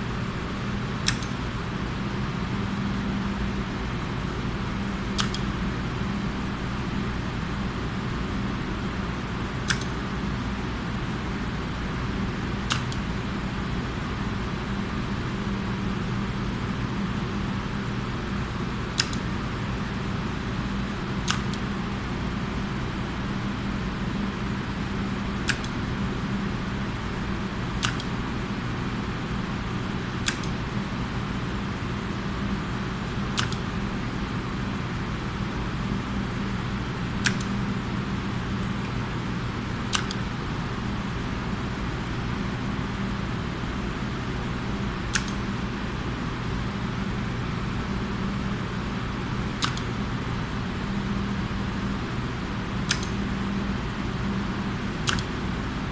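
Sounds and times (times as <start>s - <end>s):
steady low hum: 0.0s - 55.9s
push-button switch clicks: 1.0s - 1.4s, 5.2s - 5.5s, 9.6s - 10.0s, 12.7s - 13.0s, 19.0s - 19.2s, 21.2s - 21.6s, 25.4s - 25.8s, 27.8s - 28.1s, 30.2s - 30.6s, 33.4s - 33.6s, 37.2s - 37.6s, 39.9s - 40.2s, 45.1s - 45.4s, 49.6s - 49.9s, 52.9s - 53.2s, 55.0s - 55.3s.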